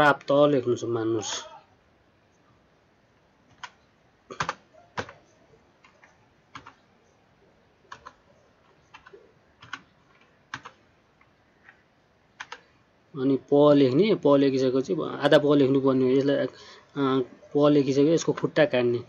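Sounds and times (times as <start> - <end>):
keyboard keys clicking: 3.5 - 6.8, 7.9 - 11.8, 12.4 - 12.6.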